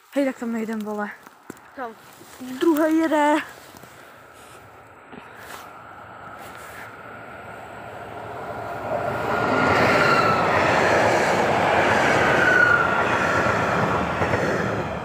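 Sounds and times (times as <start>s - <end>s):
train wheels rumbling: 1.8s - 15.0s.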